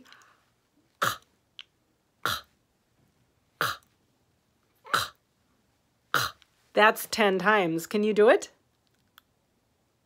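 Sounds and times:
woman making breathy k sounds: 4.8s - 5.2s.

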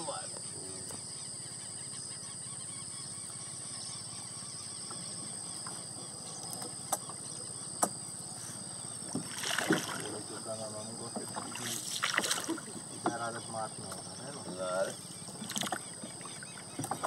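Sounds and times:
low outdoor background: 0.0s - 17.0s
fishing net hauled into canoe: 9.0s - 17.0s.

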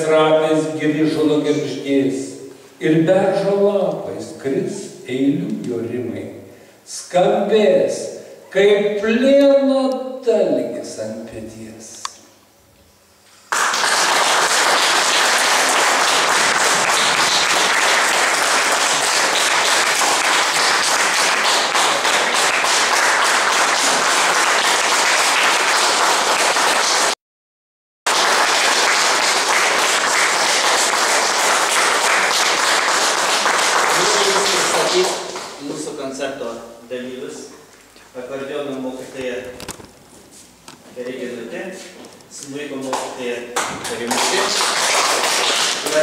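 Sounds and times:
audience applauding: 13.5s - 27.2s, 28.1s - 35.6s, 43.6s - 46.0s.

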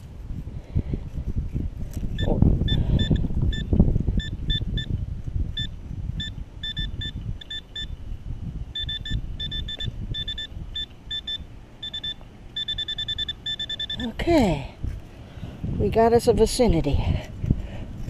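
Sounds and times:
metal detector beeping: 2.2s - 5.0s, 5.6s - 8.0s, 8.7s - 14.2s.

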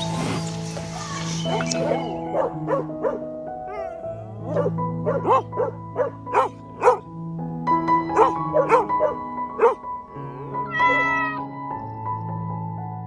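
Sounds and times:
background music: 0.0s - 13.0s
dog barking: 1.5s - 7.1s, 8.1s - 9.8s.

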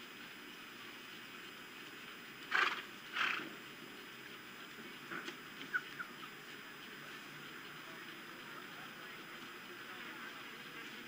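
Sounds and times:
osprey screechy calls: 2.5s - 3.4s, 5.6s - 6.4s.

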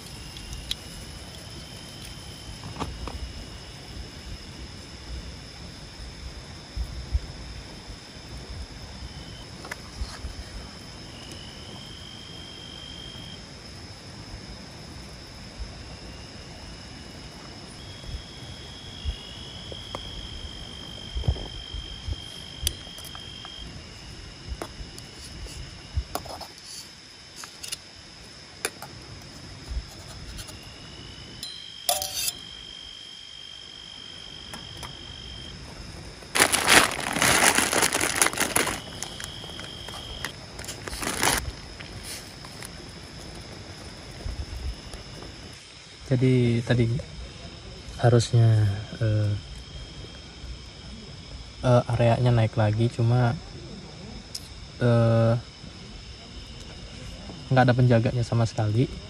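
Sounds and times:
high-pitched insect trill: 0.0s - 59.0s
lower insect trill: 0.0s - 59.0s
loud rustling crinkling: 36.2s - 43.7s.

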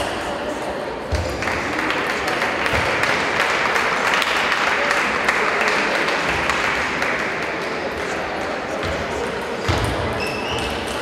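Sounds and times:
spectators applauding: 1.3s - 8.4s.

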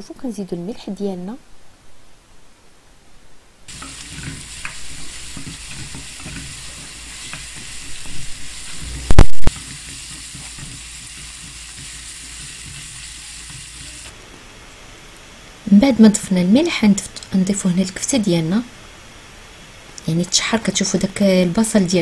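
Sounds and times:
wooden spatula scraping: 3.7s - 14.1s
onions sizzling in a frying pan: 3.7s - 14.2s.

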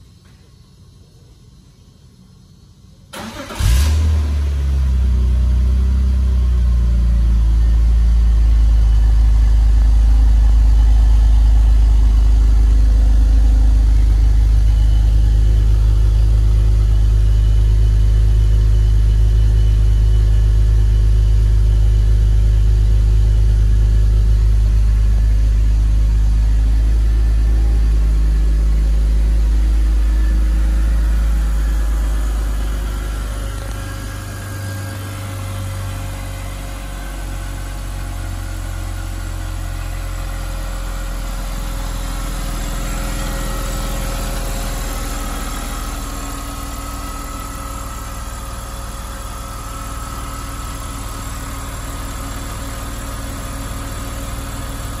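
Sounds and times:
car engine idling: 0.0s - 55.0s
car engine cranking: 3.2s - 4.1s.

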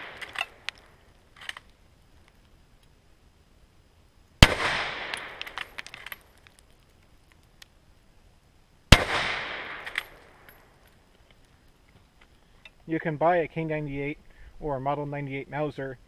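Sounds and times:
rifle shots echoing: 0.0s - 0.8s, 4.4s - 6.2s, 8.9s - 10.6s.

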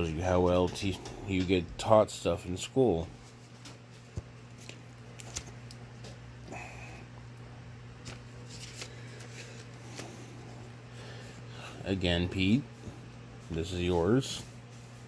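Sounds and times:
steady low hum: 0.0s - 15.0s
paper banknotes rustling: 3.2s - 5.9s, 8.0s - 11.2s.

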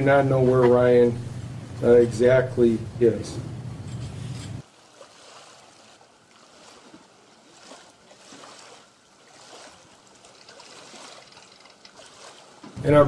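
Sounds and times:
small waves lapping on rocks: 4.6s - 12.8s.

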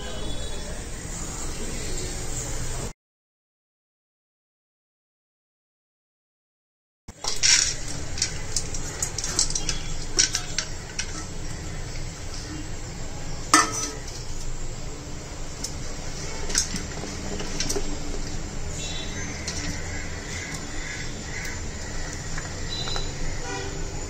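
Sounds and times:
utensils knocking metal pressure cooker: 7.2s - 11.6s, 13.5s - 14.2s
low steady hum: 7.2s - 24.0s.

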